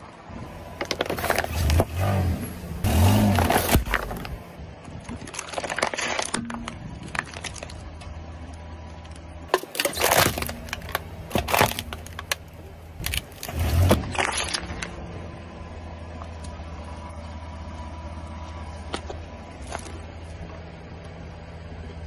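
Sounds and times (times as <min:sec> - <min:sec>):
low hum: 0:00.0 - 0:22.0
tyre crushing plastic bottles: 0:00.8 - 0:01.9, 0:02.9 - 0:04.4, 0:05.1 - 0:08.0, 0:09.5 - 0:14.9.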